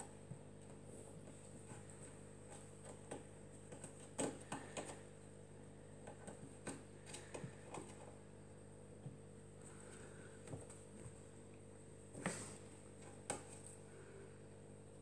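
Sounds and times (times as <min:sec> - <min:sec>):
kitten claws scrabbling on tiles: 0:00.0 - 0:05.2, 0:05.9 - 0:08.1.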